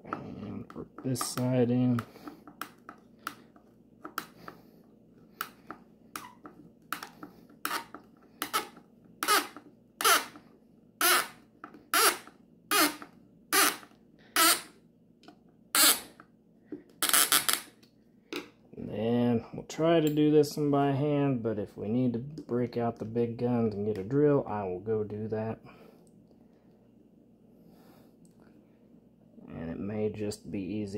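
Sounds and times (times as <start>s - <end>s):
screw squeaking: 6.2s - 10.4s, 11.0s - 14.7s, 15.7s - 16.2s, 17.0s - 17.7s.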